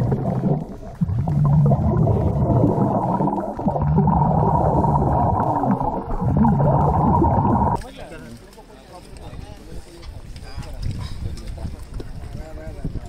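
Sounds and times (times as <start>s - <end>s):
underwater regulator bubbling: 0.0s - 7.8s.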